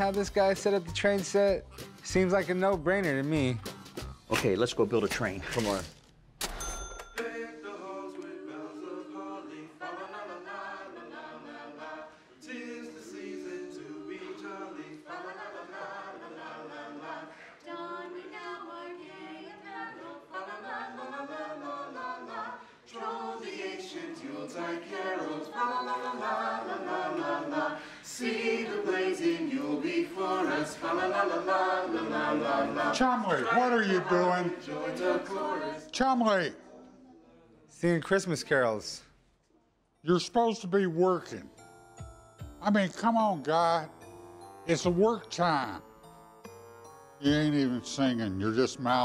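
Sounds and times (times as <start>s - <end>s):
choir singing a carol: 7.2s - 36.0s.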